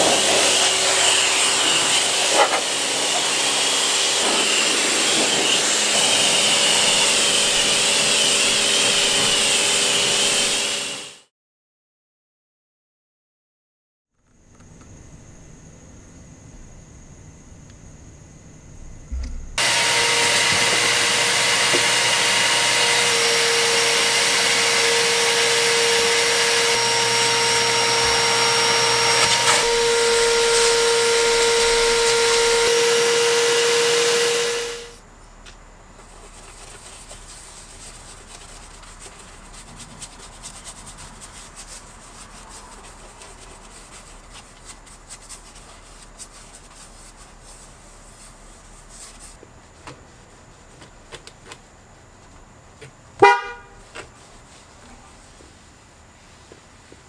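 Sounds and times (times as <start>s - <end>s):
vacuum cleaner whining: 0.0s - 11.3s, 16.5s - 35.0s, 53.2s - 53.7s
soft brush rubbing: 36.0s - 50.7s, 54.1s - 57.0s.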